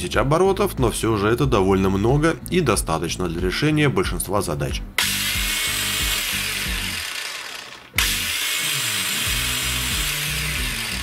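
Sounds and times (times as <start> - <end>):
angle grinder motor running: 5.0 - 11.0.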